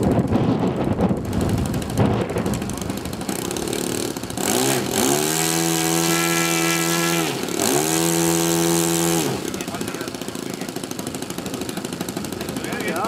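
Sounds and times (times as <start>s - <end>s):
model plane engine revving: 0.0s - 13.0s.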